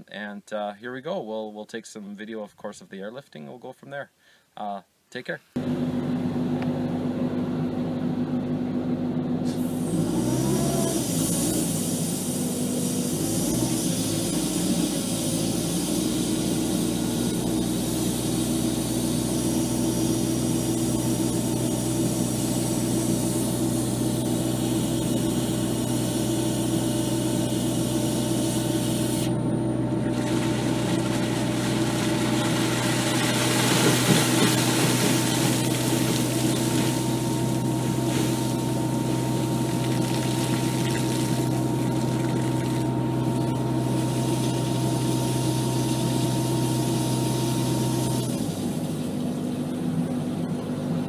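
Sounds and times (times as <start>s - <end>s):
air compressor engine running: 9.1s - 49.9s
compressed air hissing: 9.4s - 29.3s
water and debris blasting out: 30.1s - 42.9s.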